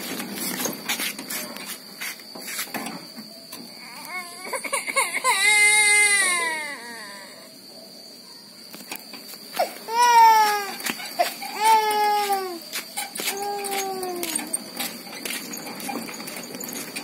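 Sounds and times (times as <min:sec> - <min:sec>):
toddler crying: 0:03.8 - 0:07.4, 0:09.6 - 0:14.6
wheelbarrow rattling over concrete: 0:10.7 - 0:17.0.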